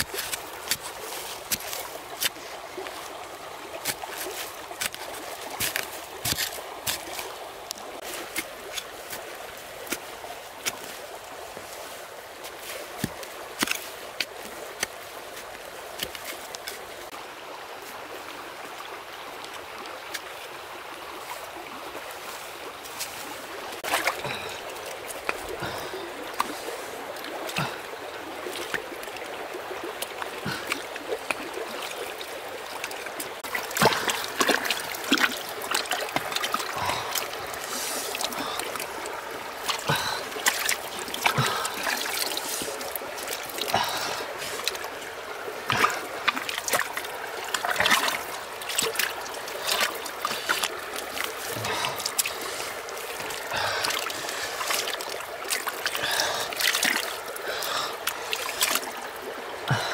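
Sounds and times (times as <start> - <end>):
hands slapping wet mud: 0.0 - 2.4, 3.8 - 9.2, 9.8 - 11.0, 12.4 - 16.8, 32.8 - 44.9, 45.6 - 58.9
trickle of water: 0.0 - 59.9.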